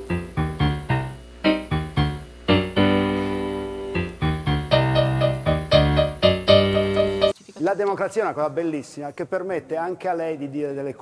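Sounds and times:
piano chords and notes: 0.0s - 7.4s.

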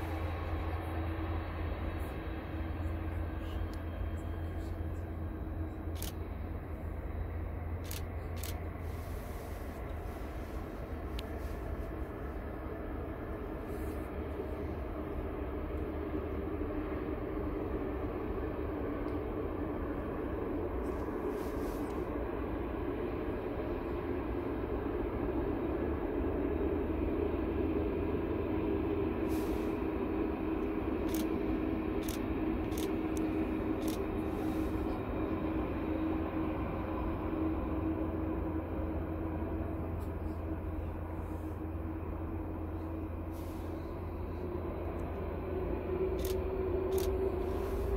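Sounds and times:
distant jet engines rumbling: 0.0s - 47.9s.

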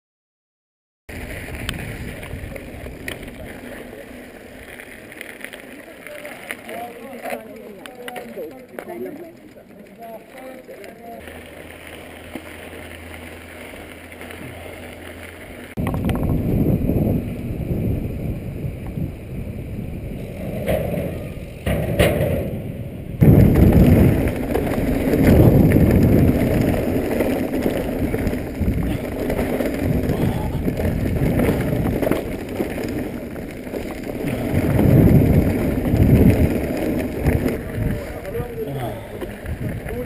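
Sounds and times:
bike rattling over stony track: 1.1s - 40.0s
bike tyres rumbling on path: 1.1s - 40.0s
wind on microphone: 15.8s - 21.8s, 22.5s - 33.4s, 34.0s - 38.6s, 39.4s - 40.0s.

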